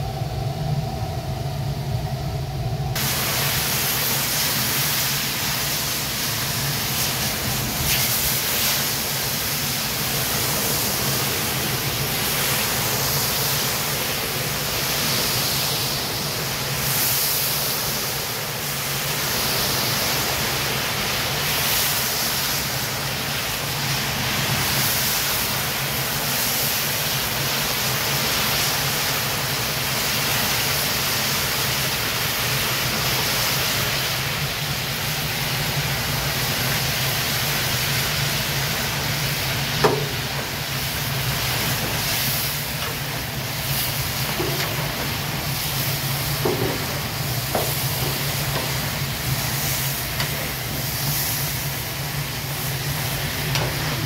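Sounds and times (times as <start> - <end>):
low hum: 0.0 - 3.0
meat sizzling in hot oil: 3.0 - 54.0.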